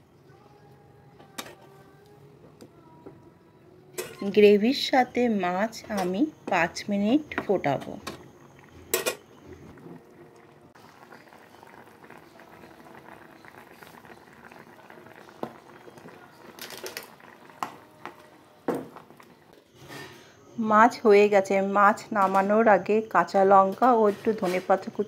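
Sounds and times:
curry bubbling in a pan: 7.4 - 19.6.

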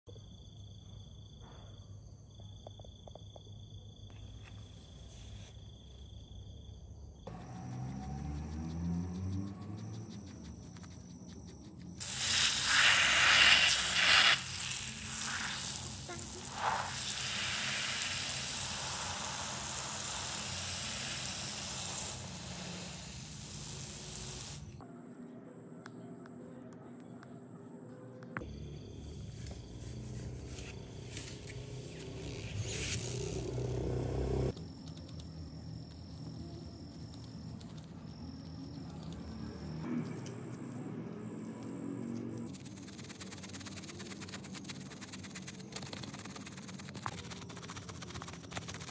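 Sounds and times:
water hissing on a rug: 12.0 - 24.7
high-pitched ringing drone: 28.4 - 39.9.

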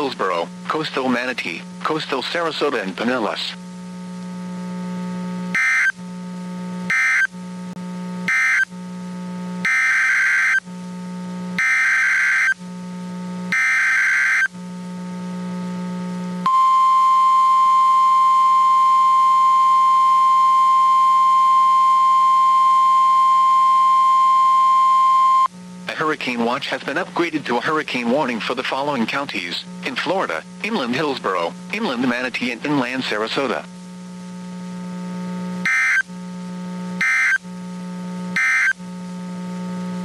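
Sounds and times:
low radio hum: 0.0 - 40.0
steady alarm tone: 5.5 - 6.0, 6.9 - 7.4, 8.3 - 8.7, 9.6 - 10.6, 11.6 - 12.6, 13.5 - 14.5, 16.4 - 25.5, 35.6 - 36.1, 37.0 - 37.4, 38.4 - 38.8.

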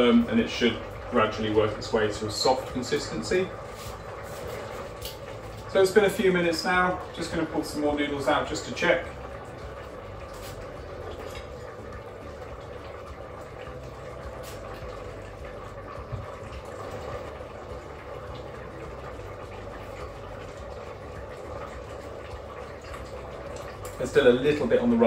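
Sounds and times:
broth boiling in a pot: 0.0 - 25.0.

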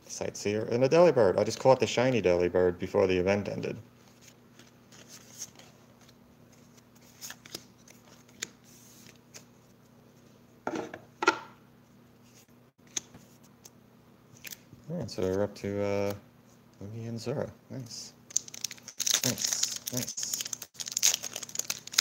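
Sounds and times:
cards rustling: 4.1 - 9.5, 18.3 - 22.0.

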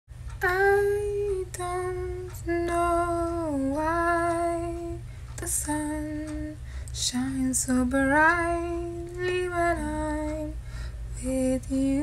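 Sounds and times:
steady low hum: 0.1 - 12.0.

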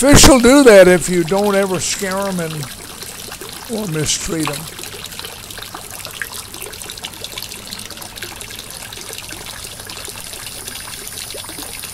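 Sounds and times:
small water splashes: 0.0 - 11.9
water trickling down rock: 0.0 - 11.9.

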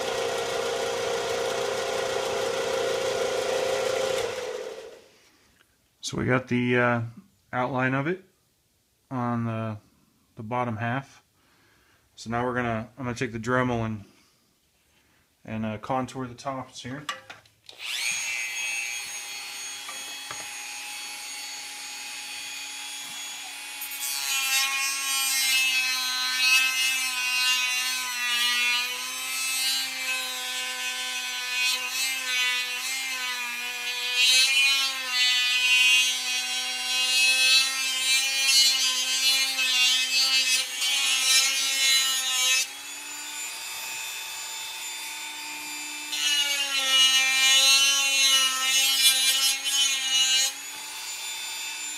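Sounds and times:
rotary tool grinding: 0.0 - 5.0, 17.7 - 20.8.

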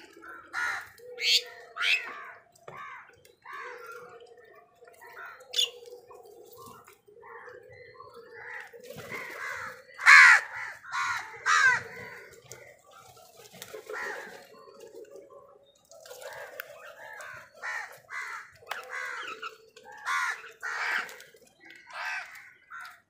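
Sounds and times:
crows cawing: 0.0 - 4.0, 8.3 - 12.8, 13.8 - 14.5, 16.4 - 23.0.

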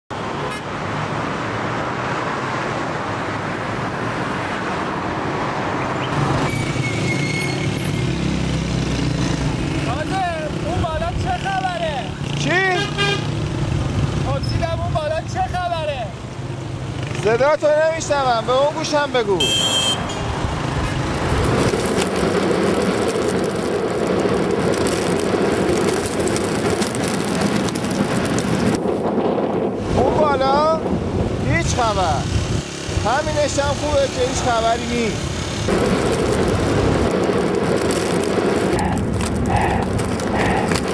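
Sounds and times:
dense city traffic: 0.1 - 40.9
motorcycle engine hum: 20.3 - 29.8, 32.4 - 40.9
strong wind buffeting microphone: 20.3 - 34.6, 35.7 - 40.9.

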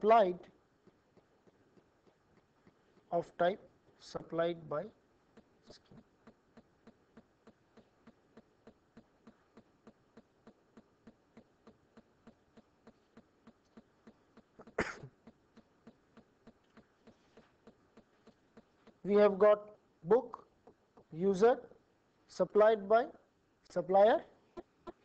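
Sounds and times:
faint even ticking: 0.0 - 21.7
person clearing throat: 14.4 - 15.4.

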